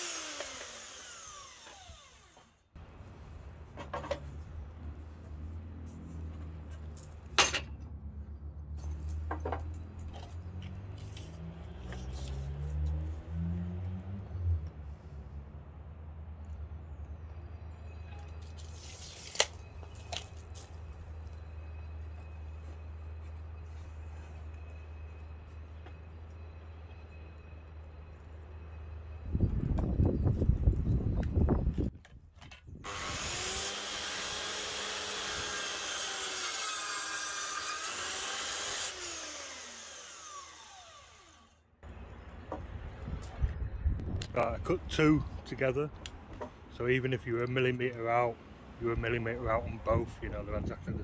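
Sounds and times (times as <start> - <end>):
mitre saw cutting timber: 0.0 - 2.6, 32.8 - 41.6
saw motor winding down whine: 0.0 - 2.6, 32.9 - 41.6
tape measure retracting: 18.4 - 20.7.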